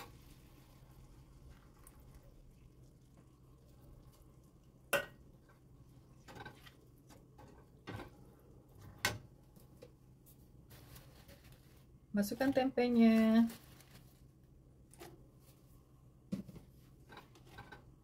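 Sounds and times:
faint steady hum: 0.0 - 18.0.

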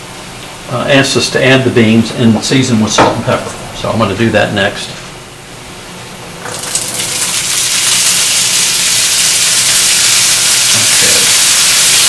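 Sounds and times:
beans sizzling in hot oil: 6.5 - 12.0.

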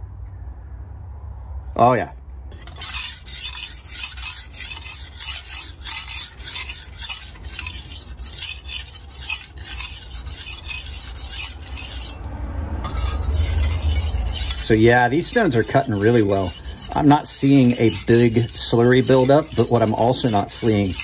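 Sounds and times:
knife scraping on whetstone: 2.5 - 12.2, 12.8 - 21.0.

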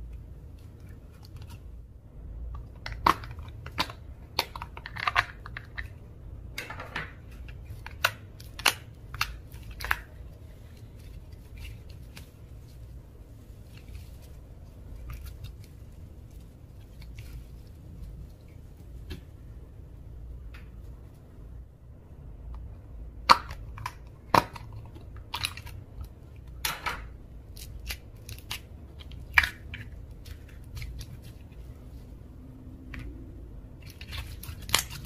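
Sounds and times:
slime squelching and popping: 2.5 - 6.0.

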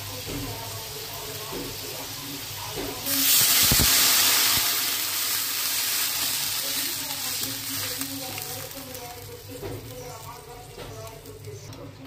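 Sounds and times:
water poured into hot oil sizzling: 3.0 - 9.0.

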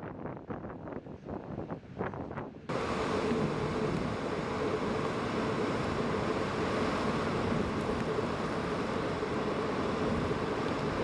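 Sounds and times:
wind and surf rushing: 2.7 - 11.0.

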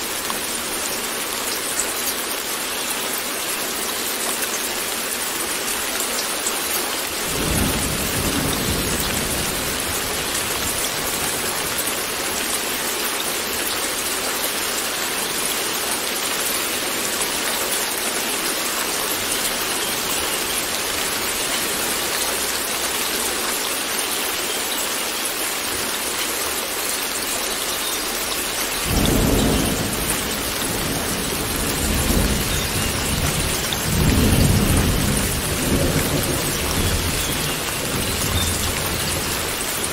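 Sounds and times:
steady rain: 0.0 - 39.9
rolling thunder: 28.8 - 39.6.

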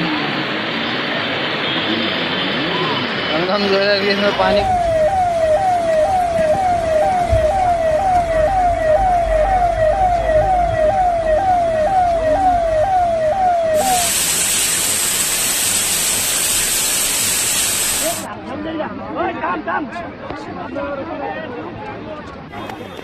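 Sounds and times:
electronic siren falling tone: 3.8 - 17.3
loud even hiss: 13.8 - 18.3.

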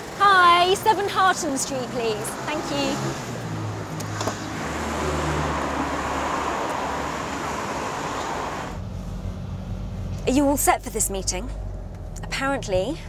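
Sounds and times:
street traffic noise: 0.0 - 13.0
car driving past: 2.2 - 10.2.

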